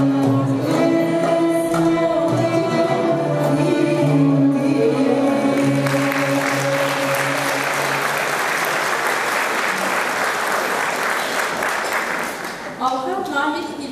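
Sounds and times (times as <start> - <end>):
choir and folk instruments: 0.0 - 9.9
audience applauding: 5.4 - 13.0.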